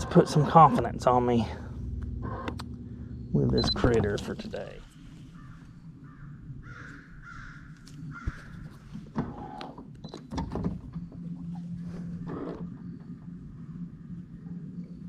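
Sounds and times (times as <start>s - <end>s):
low steady hum: 0.0s - 15.0s
crow cawing: 5.3s - 8.9s.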